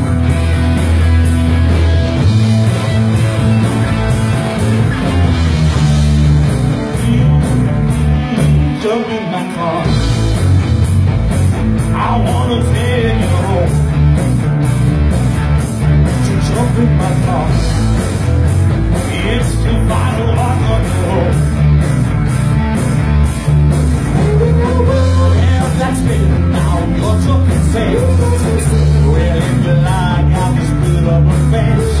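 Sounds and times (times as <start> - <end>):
bass guitar: 0.0 - 32.0
drum kit with cymbals: 0.0 - 32.0
electric guitars: 0.0 - 32.0
person singing lead vocal: 6.7 - 10.0, 11.9 - 13.9, 16.2 - 17.9, 19.0 - 21.5, 24.1 - 32.0.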